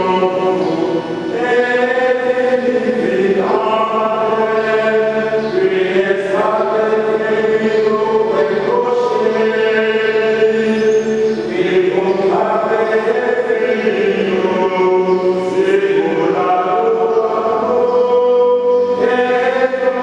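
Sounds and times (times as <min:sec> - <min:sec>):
liturgical chant: 0:00.0 - 0:20.0.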